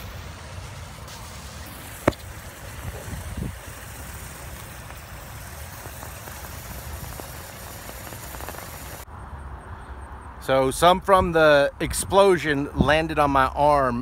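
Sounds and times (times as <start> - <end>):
sodium burning with crackling hiss: 0.0 - 9.1.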